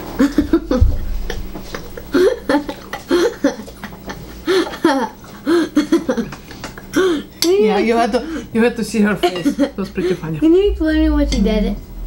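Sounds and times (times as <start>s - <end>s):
people laughing: 0.2s - 7.2s, 9.2s - 10.5s
low thump: 0.7s - 2.2s.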